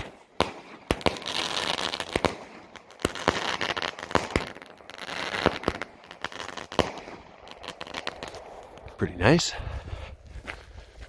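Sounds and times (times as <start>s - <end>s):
firework shots and breaks: 0.0s - 8.9s
fizzing crackle of stars: 1.2s - 9.1s.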